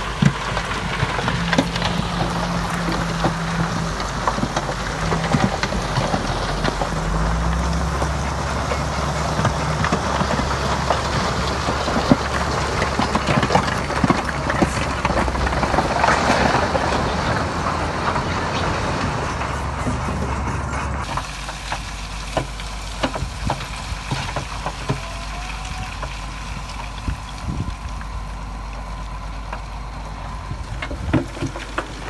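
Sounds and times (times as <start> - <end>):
diesel machinery engine drone: 0.0 - 32.0
clatter of knocks and rattles: 0.1 - 21.8, 30.6 - 32.0.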